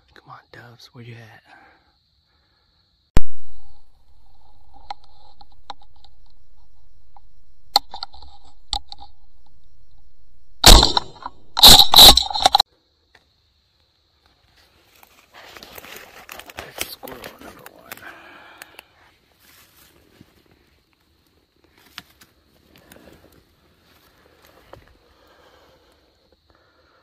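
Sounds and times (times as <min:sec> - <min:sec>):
shotgun shot: 0:03.2 - 0:03.8, 0:10.6 - 0:12.6
rustling and scraping through brush: 0:14.3 - 0:17.9, 0:19.0 - 0:25.0.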